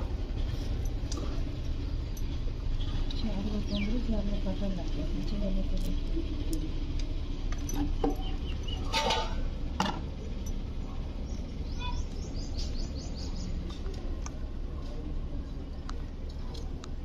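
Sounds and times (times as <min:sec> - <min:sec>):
bird twittering: 0:11.3 - 0:13.6.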